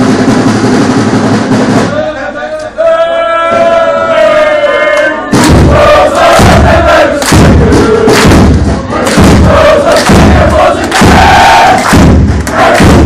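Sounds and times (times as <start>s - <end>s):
crowd singing and chanting: 2.7s - 13.0s
thumping clapping and stamping: 5.0s - 13.0s.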